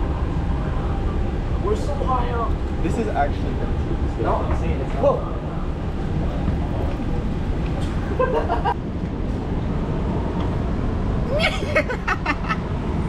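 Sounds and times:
low background rumble: 0:00.0 - 0:13.0
person making high wordless cries: 0:11.3 - 0:11.8.

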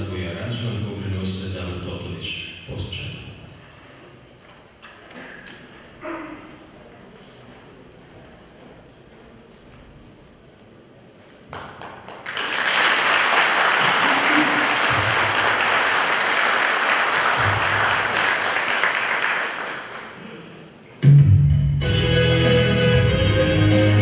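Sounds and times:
audience applause: 0:11.6 - 0:20.2.

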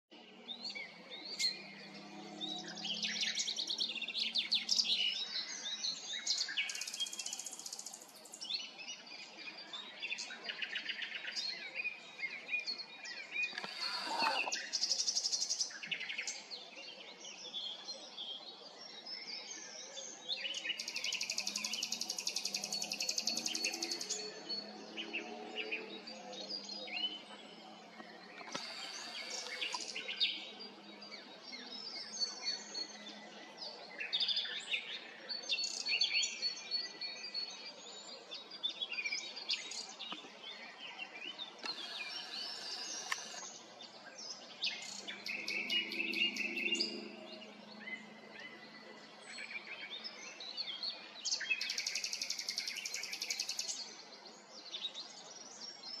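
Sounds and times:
rapid rattling bird trills: 0:28.4 - 0:30.0, 0:41.6 - 0:43.5
nightingale singing: 0:38.9 - 0:43.6.

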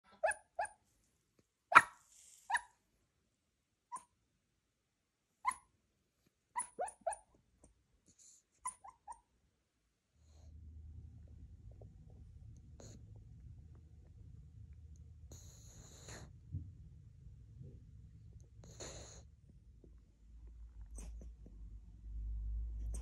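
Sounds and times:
puppy yipping and whimpering: 0:00.2 - 0:00.8, 0:01.7 - 0:02.8, 0:03.9 - 0:04.2, 0:05.4 - 0:05.7, 0:06.6 - 0:07.3, 0:08.6 - 0:09.3.

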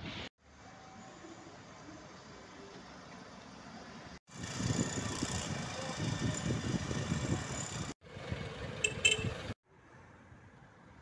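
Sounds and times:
street traffic engines: 0:00.0 - 0:11.0.

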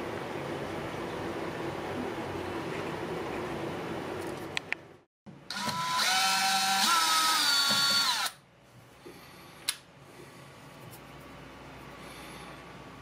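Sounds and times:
cordless drill motor whining: 0:05.5 - 0:08.4.

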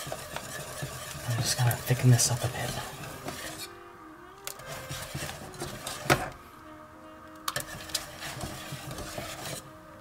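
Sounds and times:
whisk clinking against pan: 0:00.0 - 0:03.6, 0:07.6 - 0:09.6
whisk stirring thick sauce: 0:00.0 - 0:03.7, 0:04.6 - 0:06.3, 0:07.6 - 0:09.7.

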